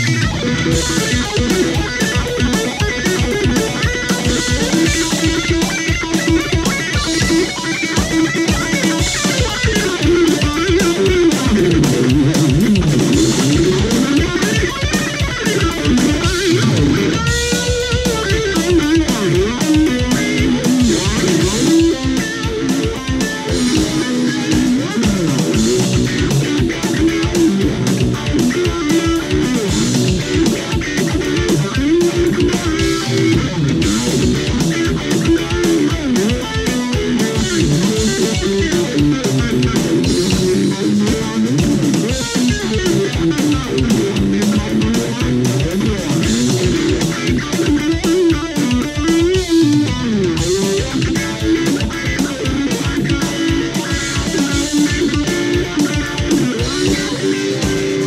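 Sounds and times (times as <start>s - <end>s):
electric guitar single-note lines: 0.0s - 58.0s
steady low beat: 0.0s - 58.0s.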